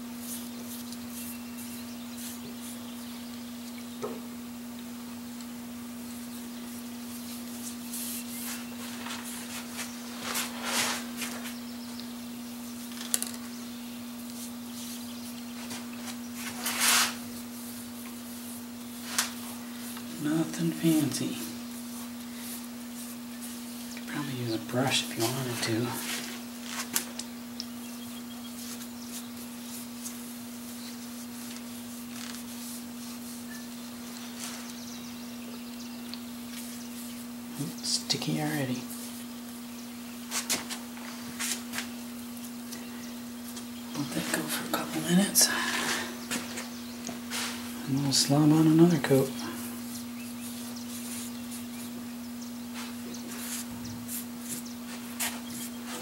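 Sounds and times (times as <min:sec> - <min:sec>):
steady low hum: 0:00.0 - 0:56.0
cloth pad swishing rubs: 0:07.6 - 0:11.6, 0:15.6 - 0:17.4
cloth pad rubbing: 0:15.6 - 0:19.8.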